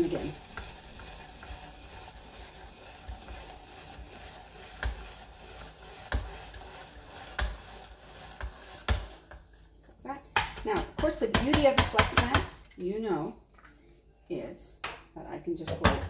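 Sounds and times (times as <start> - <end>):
spiralizer scraping rasp: 0.0 - 9.5.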